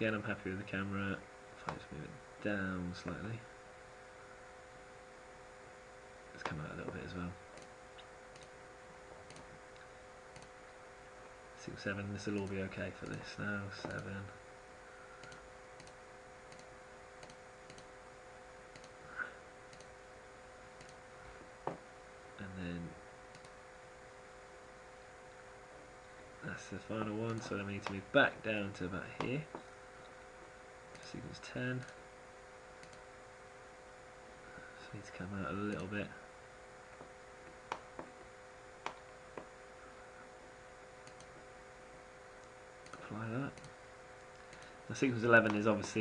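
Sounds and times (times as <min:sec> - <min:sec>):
faint electrical hum: 0:00.0 - 0:46.0
computer mouse clicking: 0:08.3 - 0:08.5, 0:09.3 - 0:09.5, 0:10.3 - 0:10.5, 0:12.3 - 0:13.2, 0:15.2 - 0:17.9, 0:18.7 - 0:19.0, 0:19.7 - 0:19.9, 0:20.8 - 0:21.0, 0:23.3 - 0:23.6, 0:32.8 - 0:33.0, 0:41.0 - 0:41.3.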